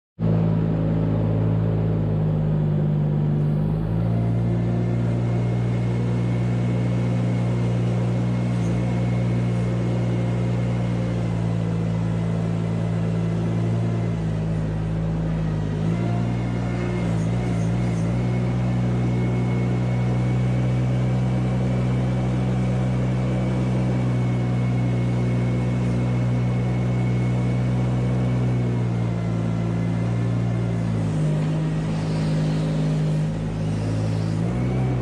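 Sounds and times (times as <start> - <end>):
farm loader engine running: 0.2 - 35.0
scraper scraping barn floor: 31.1 - 35.0.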